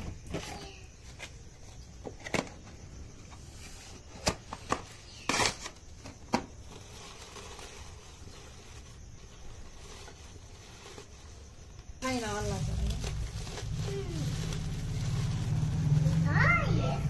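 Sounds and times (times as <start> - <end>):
paper rustling: 3.7 - 11.8, 12.6 - 16.6
paper fire crackling: 4.0 - 17.0.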